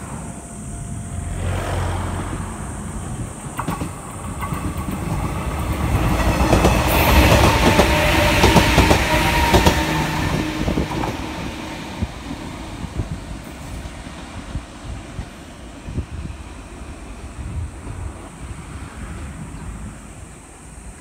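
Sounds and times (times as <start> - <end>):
electric train passing: 0.0 - 21.0
train wheels clattering over rail joints: 3.2 - 13.8.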